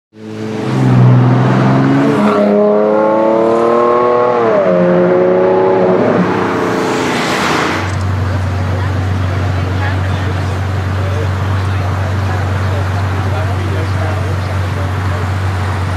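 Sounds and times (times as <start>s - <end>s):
car engine accelerating: 0.2s - 15.9s
tyre and wind rush of passing car: 0.4s - 8.2s.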